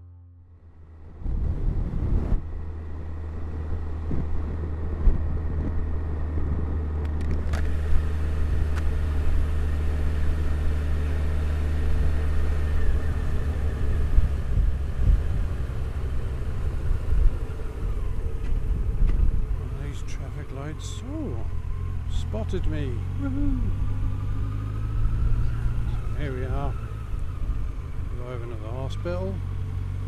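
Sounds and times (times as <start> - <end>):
motorcycle engine cruising: 0.0 - 30.0
wind and road noise: 0.0 - 30.0.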